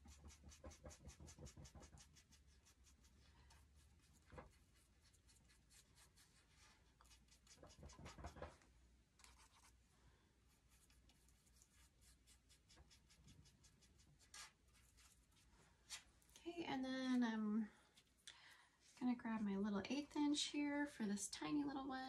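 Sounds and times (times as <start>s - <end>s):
brush rubs: 0.0s - 8.6s, 10.5s - 16.1s
paintbrush dabbing on board: 0.0s - 8.6s.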